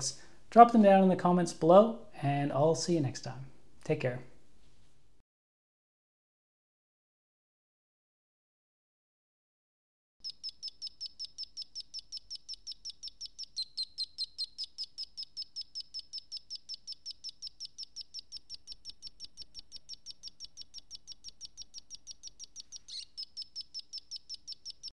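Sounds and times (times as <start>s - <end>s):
high electronic chirps: 10.2s - 24.9s.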